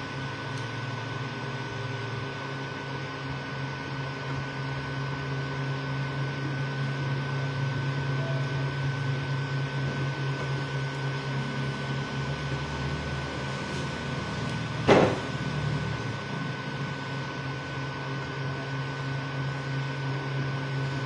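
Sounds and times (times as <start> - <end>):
three d printer humming: 0.0 - 21.0
constant high tone: 8.1 - 9.1.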